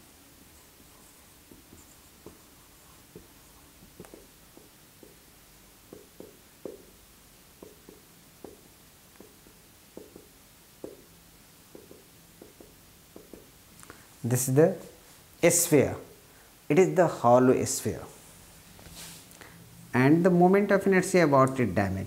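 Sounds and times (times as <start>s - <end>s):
marker strokes on whiteboard: 0.3s - 5.3s, 5.9s - 7.0s, 7.6s - 8.6s, 9.2s - 11.1s, 11.7s - 13.6s.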